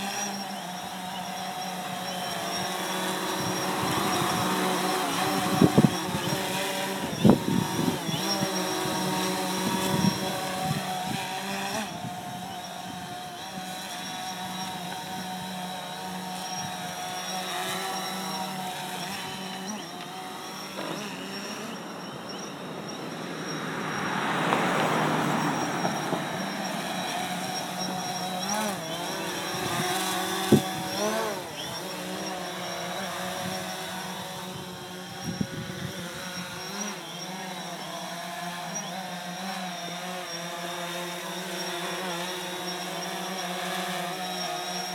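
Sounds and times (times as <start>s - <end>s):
drone propellers whining: 0.0s - 44.9s
car passing: 21.6s - 28.9s.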